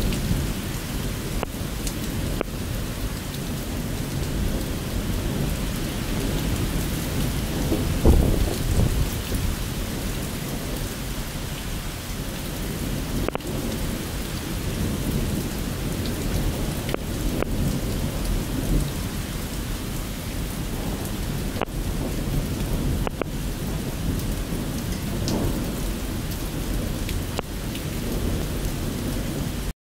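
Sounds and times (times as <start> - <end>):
rain falling: 0.0 - 29.7
rolling thunder: 4.1 - 11.0, 20.4 - 29.7.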